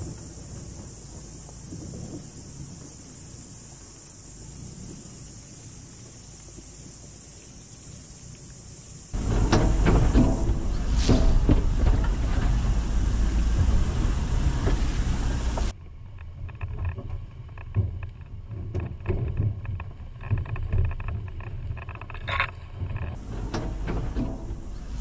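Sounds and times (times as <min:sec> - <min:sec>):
knocks: 0:09.2 - 0:15.7, 0:22.8 - 0:25.0
wind noise on microphone: 0:09.2 - 0:15.7
van engine running low: 0:09.2 - 0:15.8, 0:23.2 - 0:25.0.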